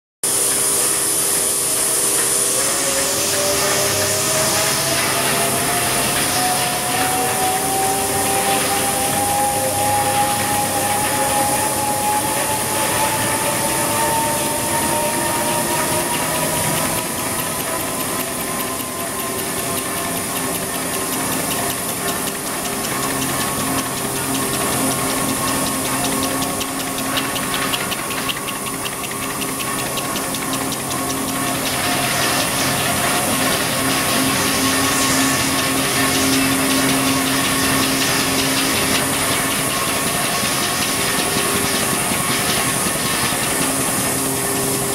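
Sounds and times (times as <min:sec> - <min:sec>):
machine rollers hiss and rumble: 0:00.2 - 0:44.9
motor whine rising in pitch: 0:00.3 - 0:44.9.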